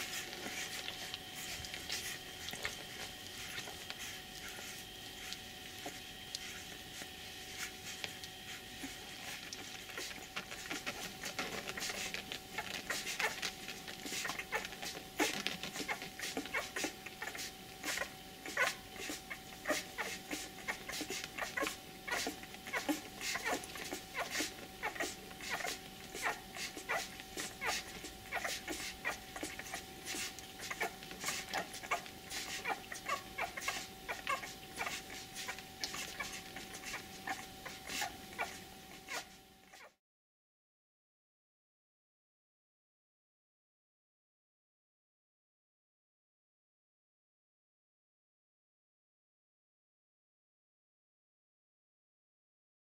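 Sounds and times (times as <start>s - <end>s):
puppies suckling wet smacking: 0.0s - 39.2s.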